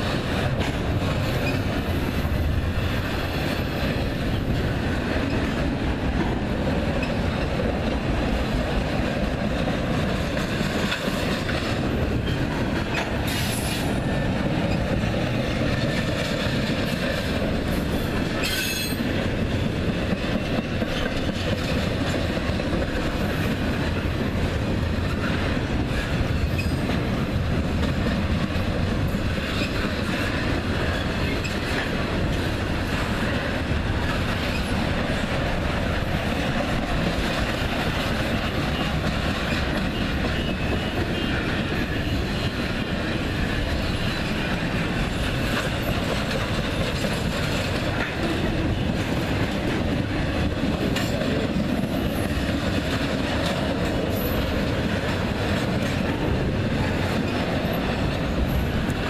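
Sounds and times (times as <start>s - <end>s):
freight train wheels rumbling: 0.0s - 59.0s
high-pitched wheel squeals: 18.4s - 19.0s.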